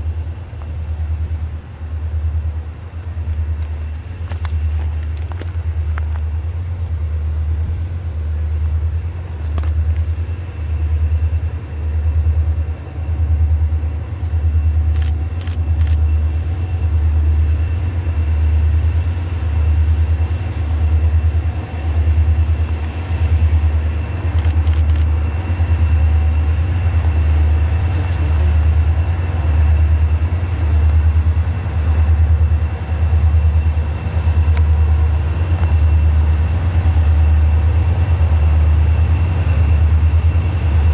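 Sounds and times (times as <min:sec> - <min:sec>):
diesel locomotive rumbling: 0:00.0 - 0:40.9.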